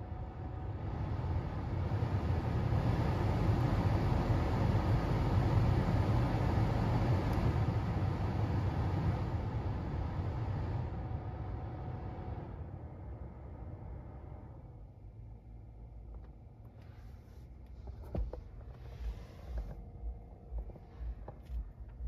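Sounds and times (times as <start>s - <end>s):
heater blower fan blowing air: 0.0s - 12.6s.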